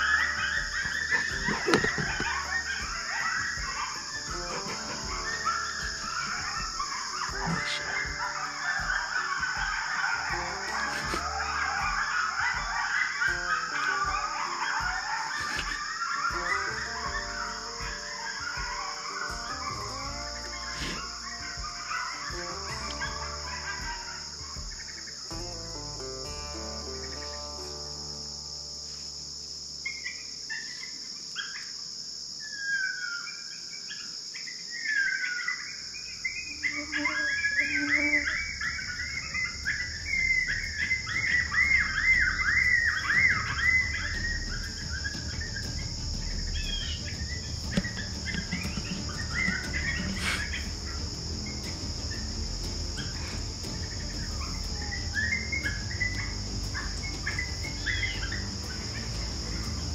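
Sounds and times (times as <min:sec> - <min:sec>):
coyotes yipping and howling: 0:00.0 - 0:29.1, 0:29.7 - 0:59.9
crickets chirring: 0:00.0 - 0:59.9.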